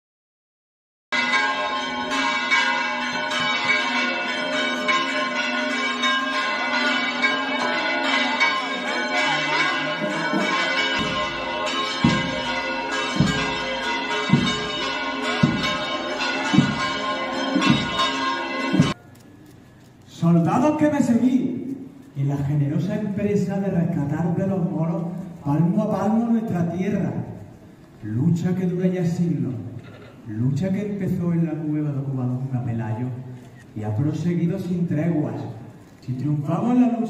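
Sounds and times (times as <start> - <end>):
church bells ringing: 1.1 - 19.0.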